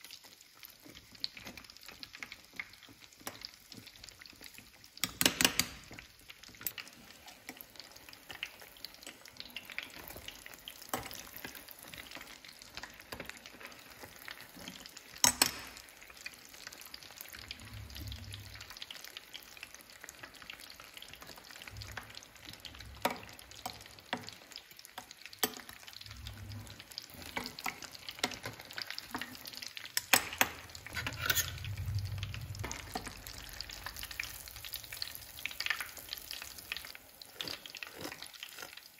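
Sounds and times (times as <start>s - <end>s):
food deep-frying in oil: 0.0s - 38.9s
metal utensil knocking on pot: 15.2s - 15.8s.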